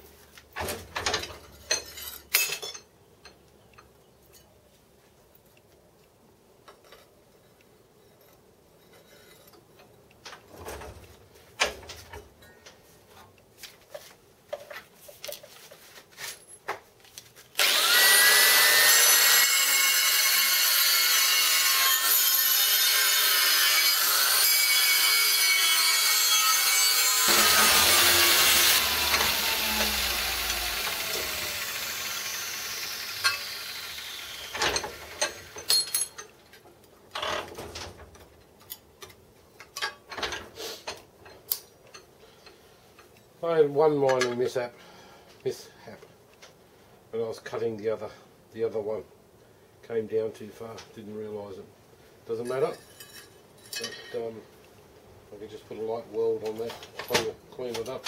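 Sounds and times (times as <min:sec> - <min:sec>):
grinder winding down: 0:17.6 - 0:35.6
angle grinder cutting steel: 0:17.6 - 0:35.8.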